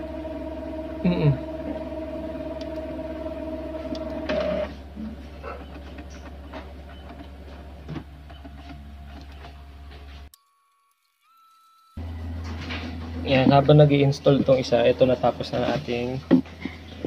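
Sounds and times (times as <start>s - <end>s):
low hum: 0.0s - 5.3s, 12.0s - 15.8s
printer mechanism whirring: 0.0s - 10.2s.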